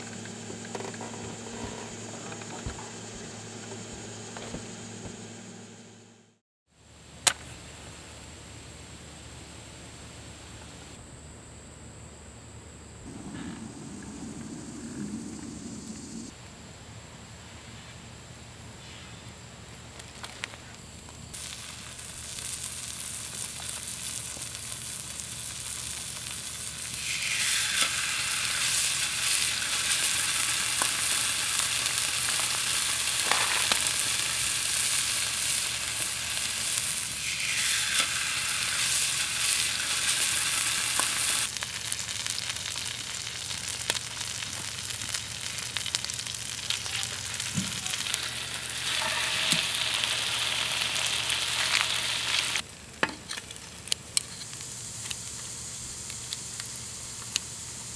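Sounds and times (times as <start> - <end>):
meat sizzling in oil: 21.3 - 52.9.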